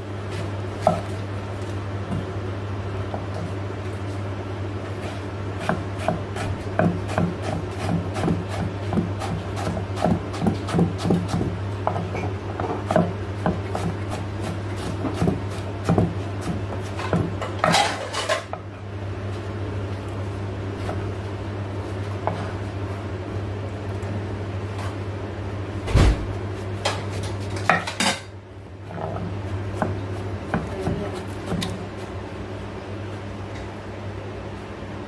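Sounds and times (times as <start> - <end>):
steady low hum: 0.0 - 35.0
knife chopping on wooden board: 5.6 - 12.1, 12.7 - 17.8, 29.8 - 31.8.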